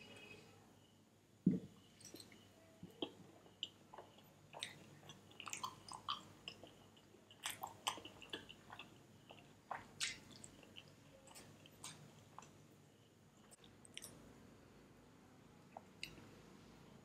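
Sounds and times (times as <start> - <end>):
person chewing food: 2.0 - 12.7, 13.4 - 14.2.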